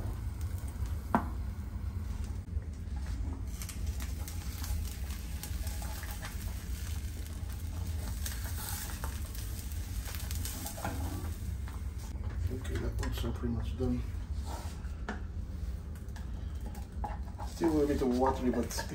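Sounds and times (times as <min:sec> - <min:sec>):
eggs sizzling in a pan: 0:00.0 - 0:13.3
steady low hum: 0:00.0 - 0:18.9.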